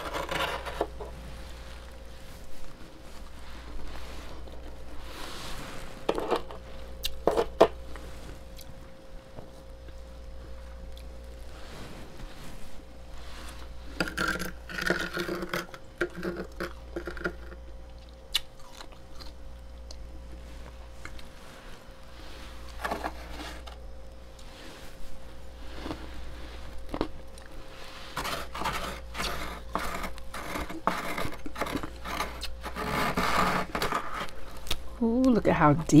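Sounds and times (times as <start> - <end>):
spoon scraping frost: 0.0 - 1.8, 22.2 - 23.8, 25.6 - 34.6
steady low hum: 0.0 - 36.0.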